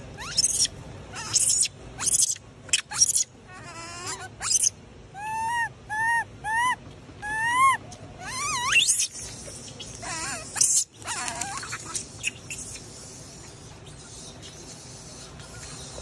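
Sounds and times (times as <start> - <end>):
baby monkey crying: 0.2 - 9.1, 9.7 - 12.8.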